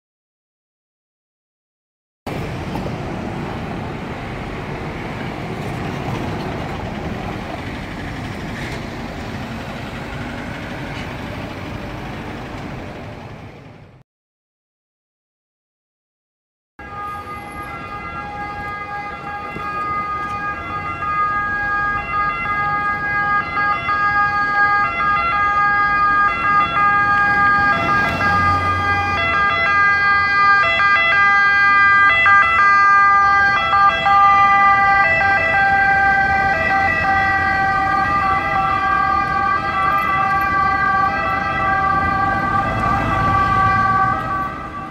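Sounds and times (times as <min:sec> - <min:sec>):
two-tone ambulance siren: 0:16.8 - 0:44.9.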